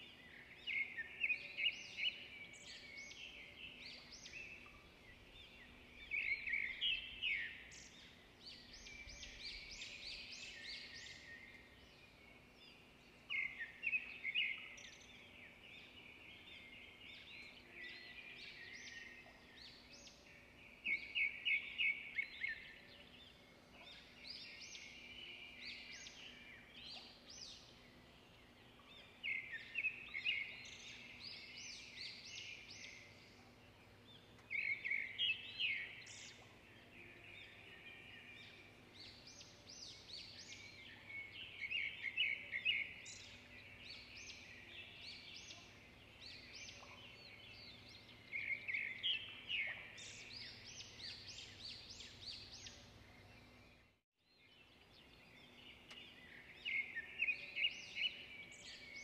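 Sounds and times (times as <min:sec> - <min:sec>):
birds chirping: 0:00.0 - 0:59.0.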